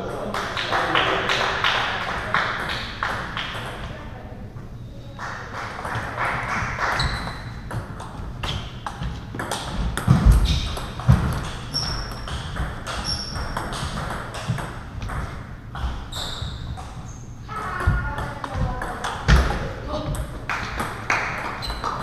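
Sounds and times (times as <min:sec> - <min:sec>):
table tennis balls clicking: 0:05.6 - 0:22.0
heavy thumps: 0:07.7 - 0:16.1, 0:16.7 - 0:20.8.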